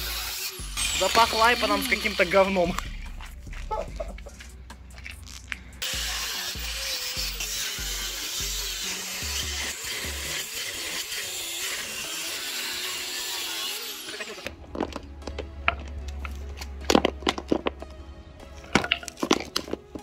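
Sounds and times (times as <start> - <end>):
angle grinder cutting metal: 0.0 - 3.0, 5.8 - 15.0
background music: 0.0 - 20.0.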